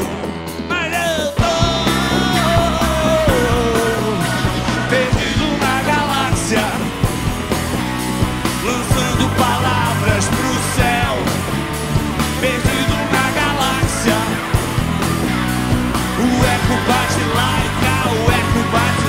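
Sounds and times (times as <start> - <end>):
rock band playing: 0.0 - 19.0
sliding lead melody: 0.0 - 19.0.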